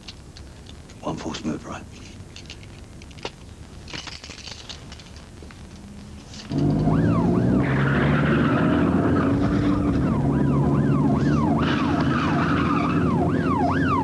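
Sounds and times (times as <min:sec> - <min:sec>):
car engine running: 0:06.5 - 0:14.0
police siren wailing: 0:06.5 - 0:14.0.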